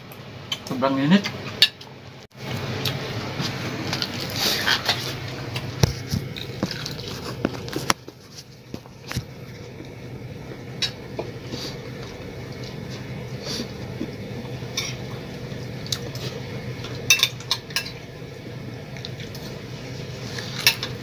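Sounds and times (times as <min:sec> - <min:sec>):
steady low hum: 0:00.0 - 0:21.0
spoons clinking on plates: 0:17.0 - 0:18.0, 0:20.5 - 0:21.0.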